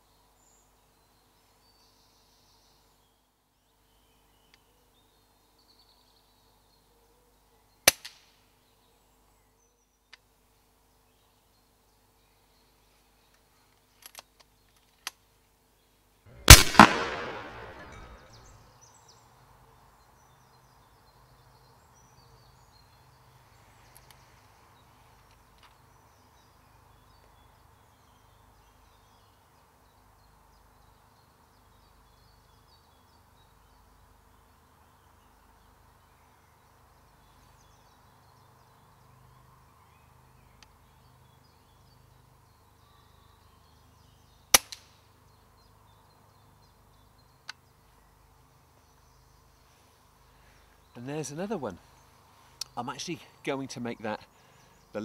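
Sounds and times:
quiet woodland background: 0.0 - 55.0
air rifle shot: 16.4 - 18.4.

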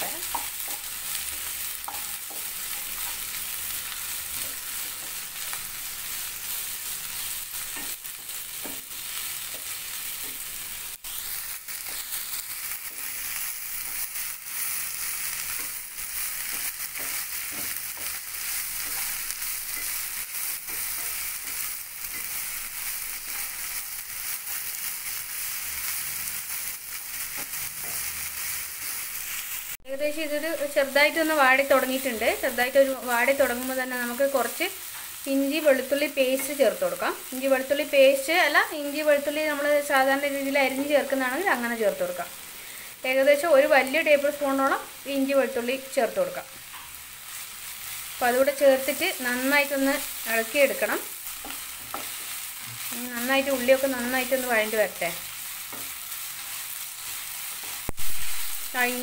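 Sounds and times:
onions sizzling in oil: 0.0 - 59.0
spatula scraping and knocking pan: 7.6 - 11.2, 11.8 - 23.6, 51.4 - 52.9.

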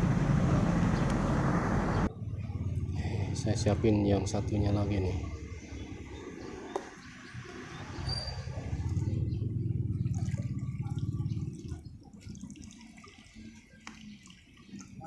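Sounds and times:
water sloshing and splashing: 4.2 - 15.0
water dripping: 8.6 - 15.0.

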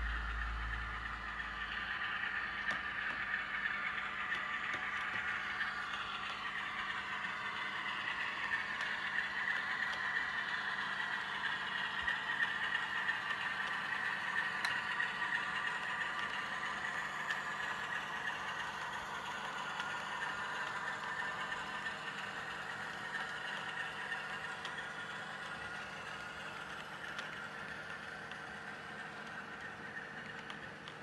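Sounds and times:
low rumble: 0.0 - 2.2
model train running on track: 0.0 - 31.0.

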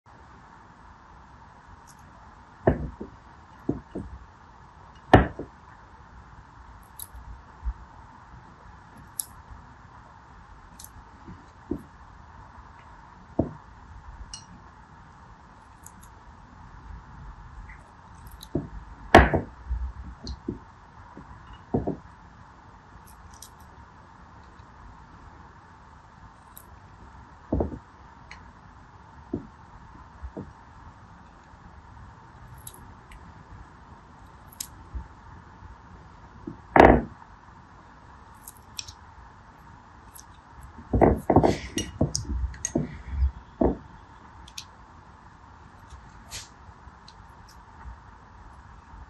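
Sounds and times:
steady faint hiss: 0.1 - 49.0
knocks and taps on plastic dishes: 2.7 - 3.1, 3.7 - 4.2, 13.4 - 13.6, 21.2 - 22.0, 27.5 - 27.8, 43.6 - 43.9.

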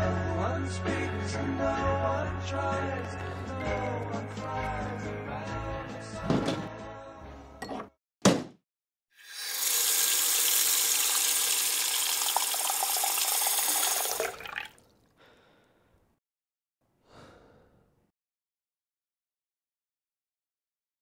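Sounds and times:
tap running water: 9.2 - 14.8.

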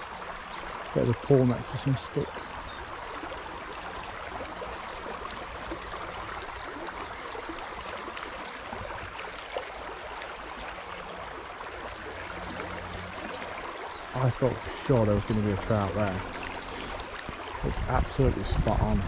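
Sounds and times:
stream running over stones: 0.0 - 19.0
faint clicks: 7.8 - 8.4, 10.1 - 10.4, 16.3 - 17.4.

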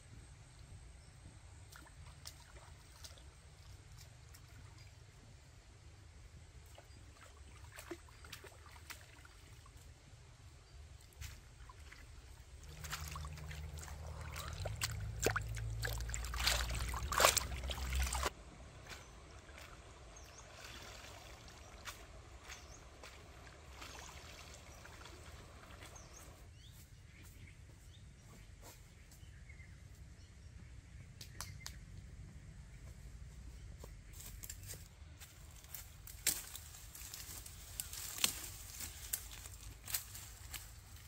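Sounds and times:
stream water sloshing and trickling: 1.6 - 5.5, 6.4 - 26.5, 35.2 - 41.0.

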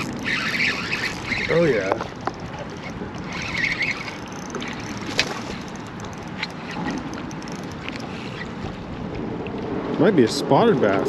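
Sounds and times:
fishing reel spinning: 0.0 - 8.8
water lapping: 0.0 - 11.0.

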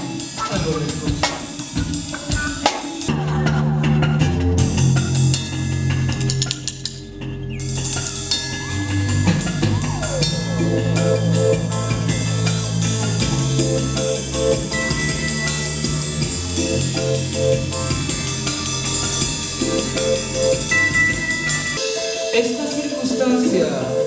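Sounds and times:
electric guitar figure: 0.0 - 22.3
drum kit beat with cymbals: 0.0 - 24.0
held low notes: 3.1 - 21.8.

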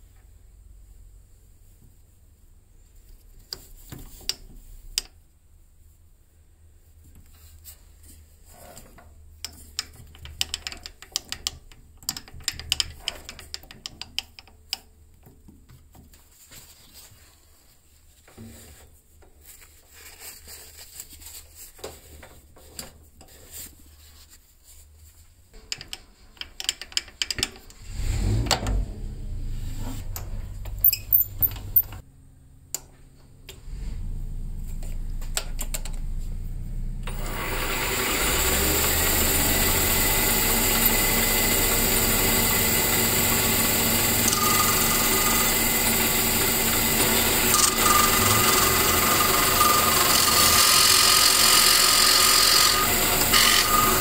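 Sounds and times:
low steady hum: 28.4 - 37.2.

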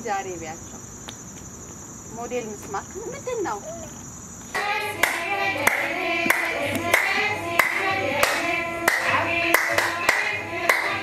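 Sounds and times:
voices singing: 2.1 - 11.0
hand claps: 4.6 - 11.0.

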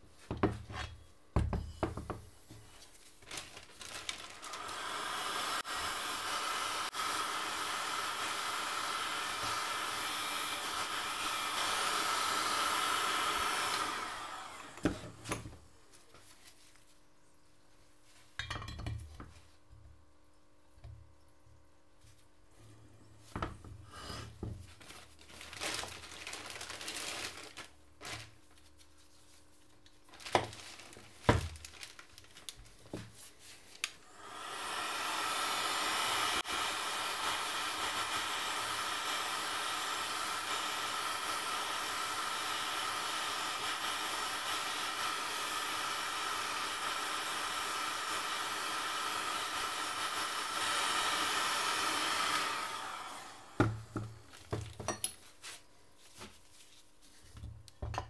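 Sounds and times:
heat gun blowing: 3.8 - 15.5, 23.3 - 27.6, 33.7 - 55.0.

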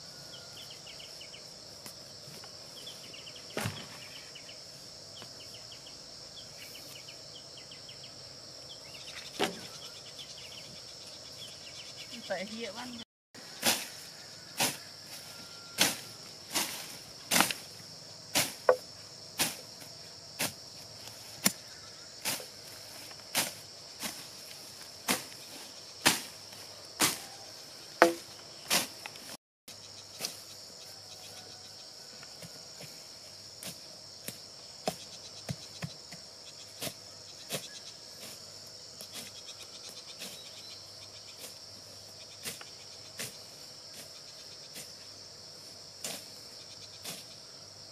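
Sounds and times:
insects buzzing: 0.0 - 47.9
blade chopping into wood: 28.0 - 28.9.

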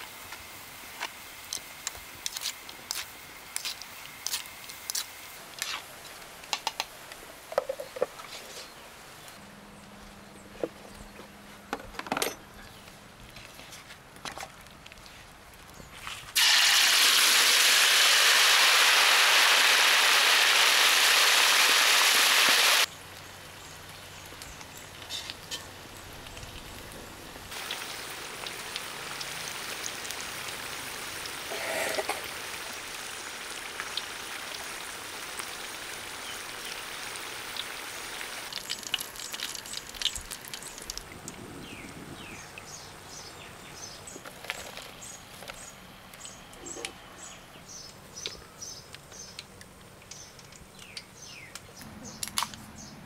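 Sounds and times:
food deep-frying in hot oil: 16.3 - 42.9.

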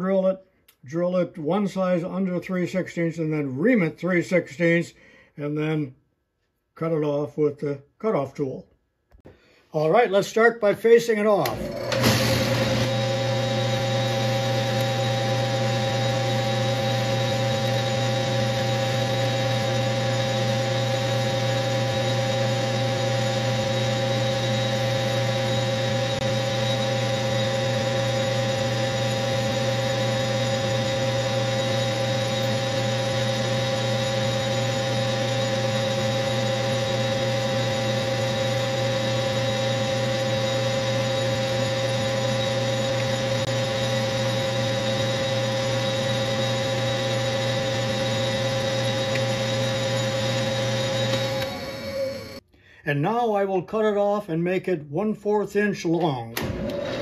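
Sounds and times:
metal lathe humming and whining: 11.5 - 52.4.

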